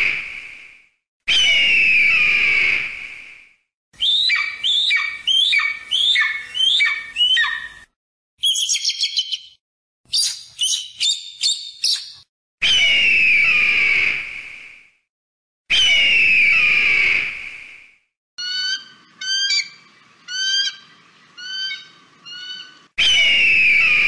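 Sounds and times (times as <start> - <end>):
bird harsh scream: 1.3 - 2.8, 4.0 - 7.8, 18.4 - 24.0.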